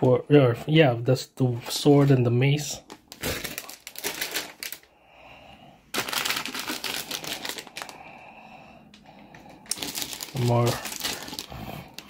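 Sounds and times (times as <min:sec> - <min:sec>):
plastic bags crinkling: 0:02.8 - 0:04.9, 0:05.9 - 0:08.2, 0:09.3 - 0:12.0.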